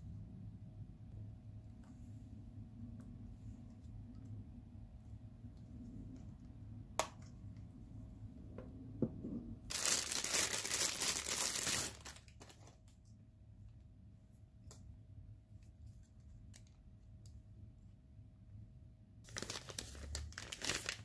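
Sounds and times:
bubble wrap crinkling: 0:09.7 - 0:13.0, 0:19.3 - 0:21.0.

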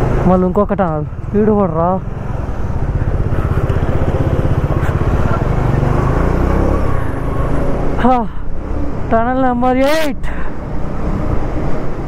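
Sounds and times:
motorcycle engine running: 0:00.0 - 0:09.2.

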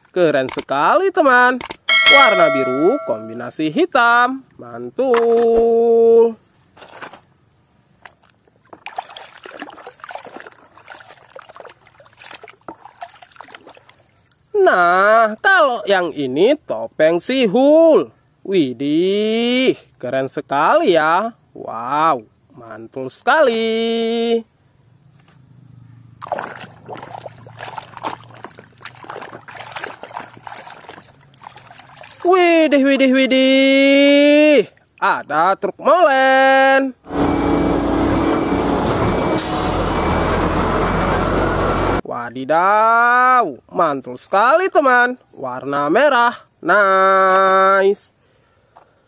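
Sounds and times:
water splashing in plastic tub: 0:08.0 - 0:14.5, 0:26.2 - 0:32.9
faint water drips: 0:08.0 - 0:14.6, 0:26.2 - 0:32.4.

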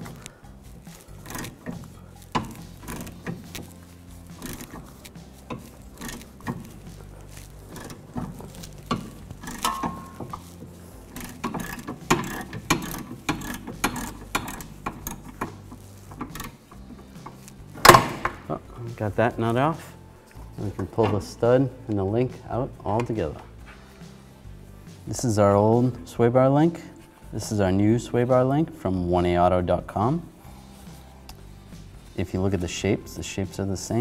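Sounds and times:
hand ratchet clicking: 0:00.0 - 0:18.5.

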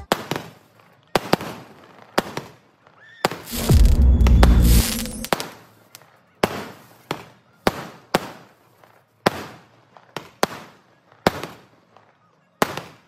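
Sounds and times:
sharp firework bangs: 0:03.3 - 0:05.5
firework boom: 0:03.5 - 0:05.3.

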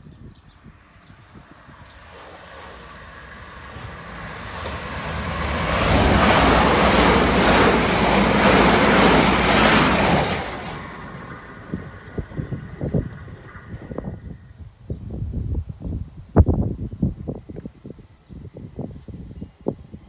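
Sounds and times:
train passing at speed: 0:00.7 - 0:14.4.

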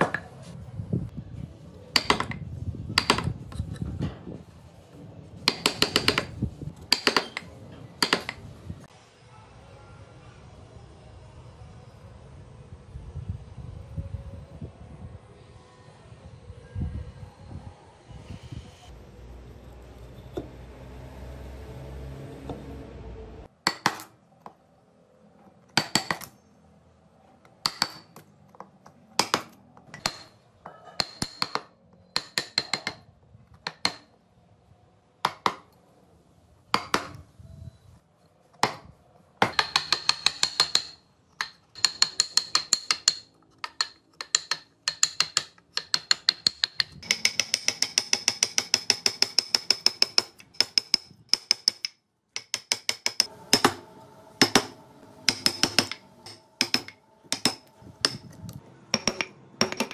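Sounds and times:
chisel tapping into wood: 0:01.9 - 0:02.4, 0:05.4 - 0:08.4, 0:29.2 - 0:30.3, 0:31.0 - 0:33.0, 0:33.6 - 0:34.1, 0:39.4 - 0:53.8, 0:54.4 - 0:58.2, 0:58.9 - 0:59.9.

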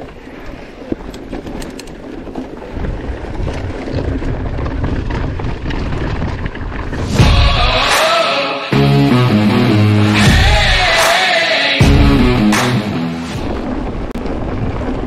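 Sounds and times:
bike tyres rattling on dirt trail: 0:00.0 - 0:07.7, 0:13.4 - 0:15.0
wind buffeting microphone: 0:00.0 - 0:07.9, 0:13.3 - 0:15.0.

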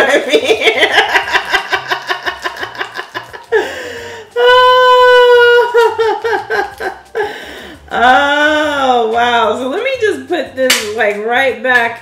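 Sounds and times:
woman laughing: 0:00.0 - 0:07.2.

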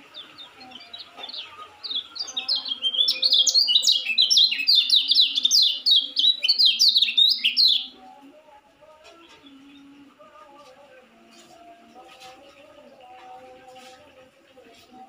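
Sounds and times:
bird singing high chirps: 0:00.0 - 0:08.0.

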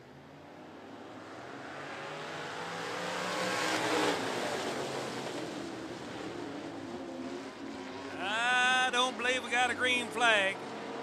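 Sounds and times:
race cars accelerating past: 0:00.5 - 0:11.0.

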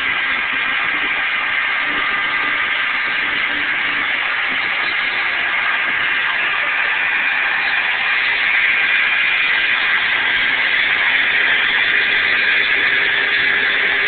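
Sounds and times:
router spindle whining while cutting wood: 0:07.7 - 0:14.0.

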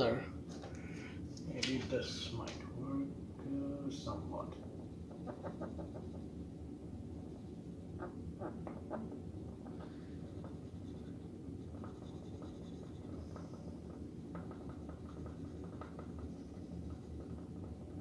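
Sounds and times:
marker rubbing on whiteboard: 0:04.9 - 0:06.4, 0:07.2 - 0:18.0.

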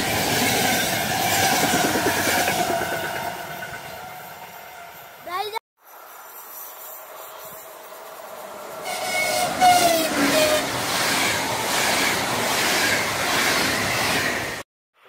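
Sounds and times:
electric train passing: 0:00.0 - 0:14.6
train coaches rushing and clattering: 0:00.0 - 0:14.6.

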